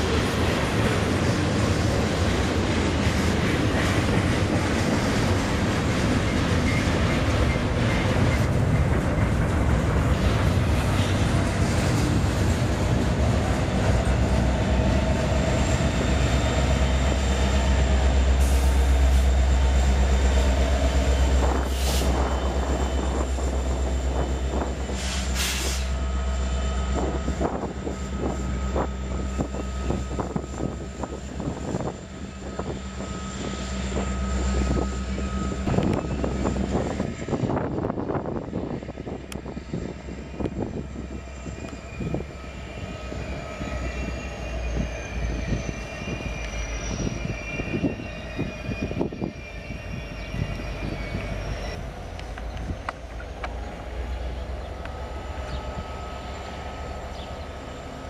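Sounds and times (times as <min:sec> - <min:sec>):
train wheels clattering on rails: 0:00.0 - 0:26.0
diesel locomotive engine drone: 0:00.0 - 0:58.0
wheel squeal: 0:39.6 - 0:54.2.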